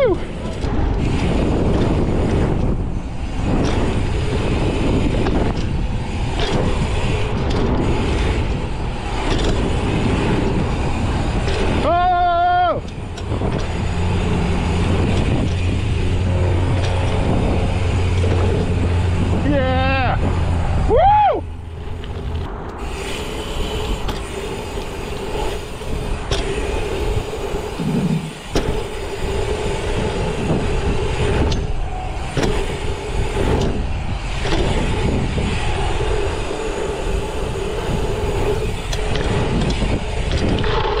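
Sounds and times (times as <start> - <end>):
bike knocking and rattling: 0.0 - 41.0
bike tyres rolling over gravel: 0.0 - 41.0
wind on microphone: 0.0 - 41.0.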